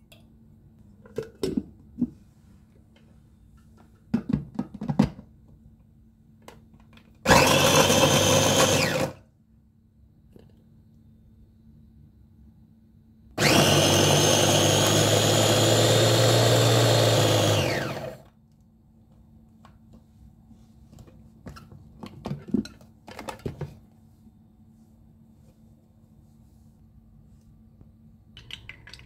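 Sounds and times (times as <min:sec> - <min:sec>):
electric food chopper running: 0:07.3 - 0:09.2, 0:13.4 - 0:18.3.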